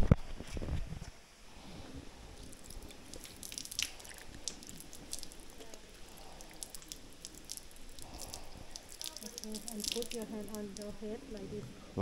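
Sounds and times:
water dripping: 2.2s - 11.7s
water splashing on hands: 2.4s - 11.0s.

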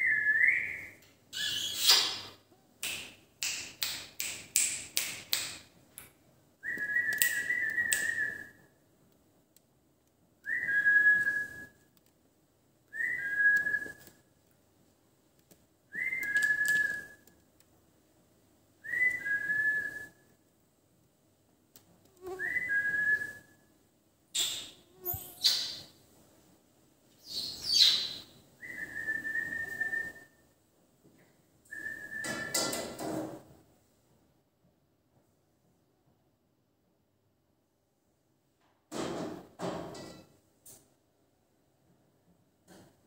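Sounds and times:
parakeet whistling: 1.4s - 2.1s, 24.4s - 25.8s, 27.2s - 28.2s.

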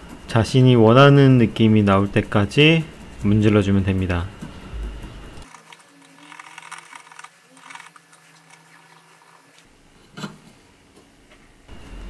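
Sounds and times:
scouring pad scratching metal: 5.4s - 9.6s.

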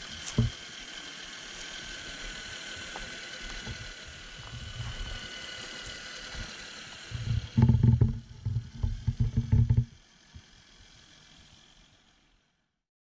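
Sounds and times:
rc truck motor whine: 0.0s - 12.8s
loud low rumbling with knocks: 0.2s - 0.6s, 6.2s - 10.0s.

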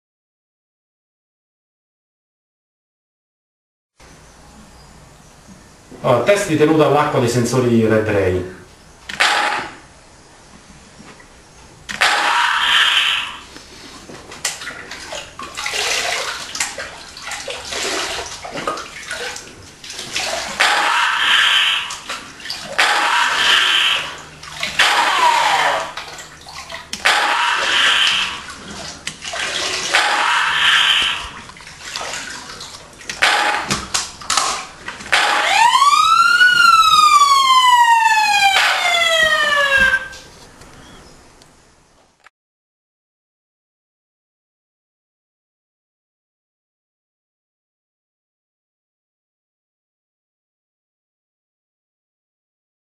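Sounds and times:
water splashing and pouring: 13.8s - 37.3s.

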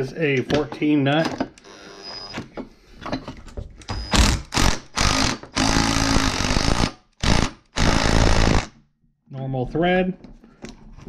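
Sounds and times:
impact driver hammering: 4.2s - 8.7s.

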